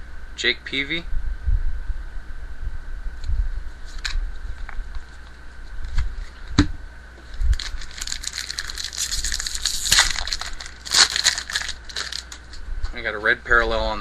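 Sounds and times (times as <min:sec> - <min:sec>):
cards rustling and clicking: 0:07.6 - 0:12.6.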